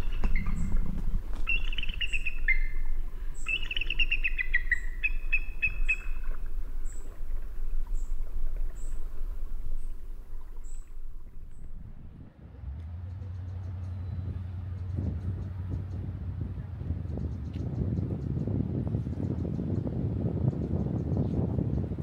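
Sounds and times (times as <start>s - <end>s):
eagle chittering calls: 0.0s - 12.1s
low steady rumble: 0.0s - 22.0s.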